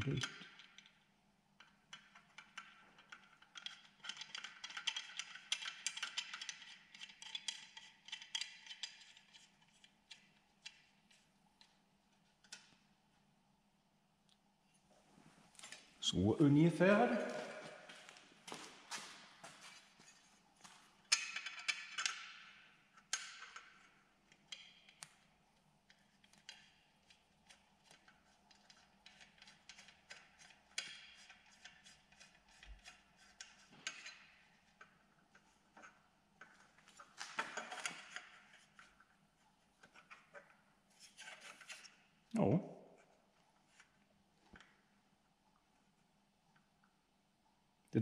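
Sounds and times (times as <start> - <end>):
metal brackets clicking and knocking: 1.6 - 10.8, 21.1 - 25.1, 27.8 - 38.9.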